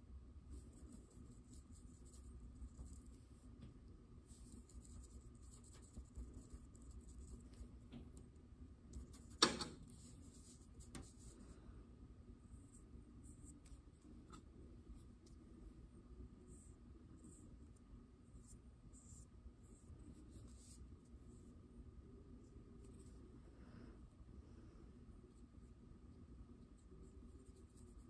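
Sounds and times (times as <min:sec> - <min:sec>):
paintbrush scratching on paper: 0:00.5 - 0:03.6, 0:04.2 - 0:07.9, 0:08.9 - 0:11.5, 0:16.4 - 0:21.6, 0:26.8 - 0:28.0.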